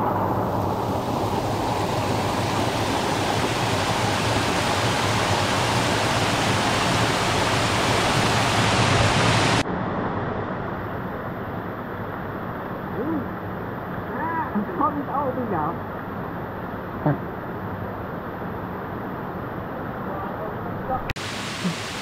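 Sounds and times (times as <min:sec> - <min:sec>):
waterfall rushing: 0:00.0 - 0:09.6, 0:21.1 - 0:22.0.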